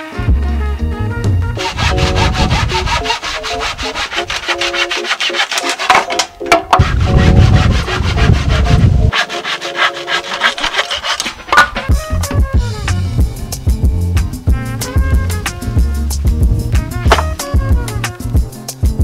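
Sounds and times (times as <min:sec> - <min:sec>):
handsaw cutting wood: 0:01.6 - 0:06.2, 0:06.8 - 0:11.9, 0:17.1 - 0:17.3.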